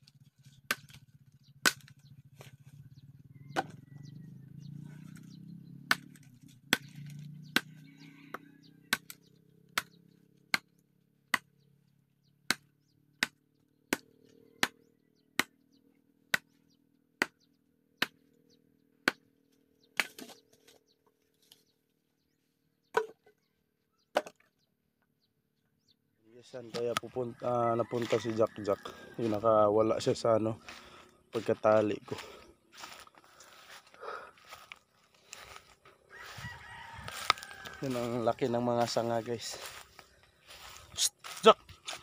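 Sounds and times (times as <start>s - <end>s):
knife chopping wood: 0.5s - 1.0s, 1.6s - 2.5s, 3.5s - 3.8s, 5.8s - 7.8s, 8.9s - 9.2s, 9.8s - 10.7s, 11.3s - 11.6s, 12.5s - 15.6s, 16.3s - 16.6s, 17.2s - 18.3s, 19.0s - 19.3s, 19.9s - 20.5s.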